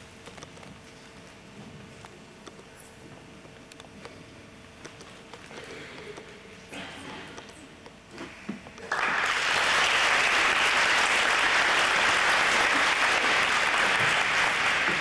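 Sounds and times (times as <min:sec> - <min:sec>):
group applauding: 0:08.8 - 0:15.0.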